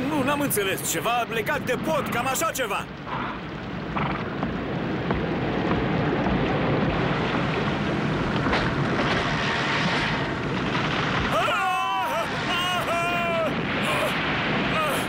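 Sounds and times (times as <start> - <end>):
rain: 0.0 - 15.0
rushing floodwater: 0.0 - 15.0
wind: 0.0 - 15.0
wooden bridge cracking: 4.0 - 12.1.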